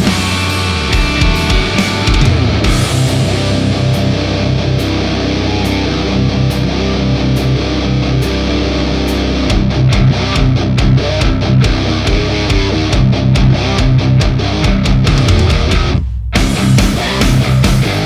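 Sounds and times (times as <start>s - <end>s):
programmed drum track: 0.0s - 5.1s, 9.2s - 18.0s
distorted electric guitar riff: 0.0s - 18.0s.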